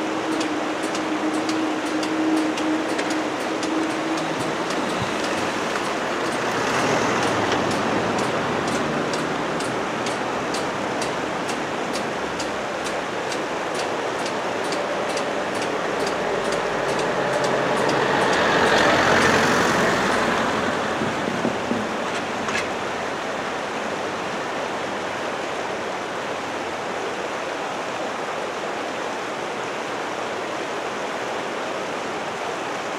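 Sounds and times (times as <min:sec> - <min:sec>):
faint ticking: 0:00.0 - 0:21.9
passing traffic: 0:00.0 - 0:26.0
rushing background noise: 0:00.0 - 0:32.9
car driving past: 0:03.9 - 0:09.9, 0:16.2 - 0:22.4.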